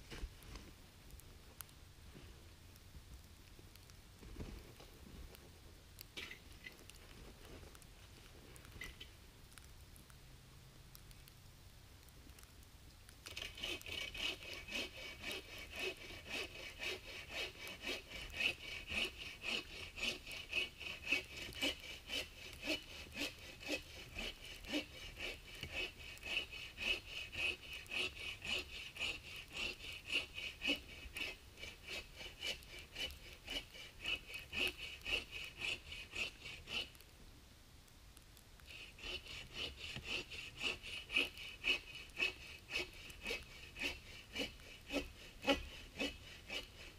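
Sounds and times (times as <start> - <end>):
hand saw cutting wood: 13.3 - 37.0, 38.7 - 46.9.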